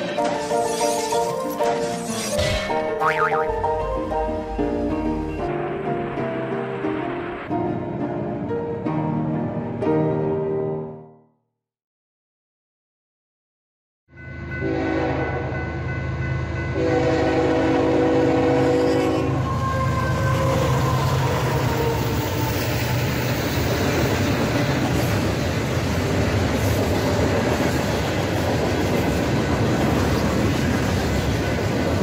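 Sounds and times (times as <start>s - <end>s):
train horn blasts: 14.6s - 15.6s, 16.8s - 22.2s
train wheels rumbling on rails: 16.8s - 32.0s.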